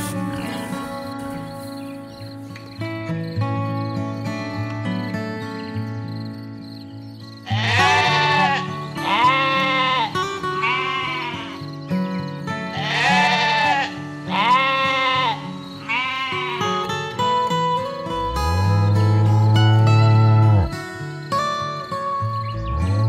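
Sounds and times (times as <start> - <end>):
background music sustained tones: 0.0 - 7.5, 16.9 - 23.0
animal bleating: 7.4 - 11.7, 12.6 - 17.0, 18.2 - 20.8.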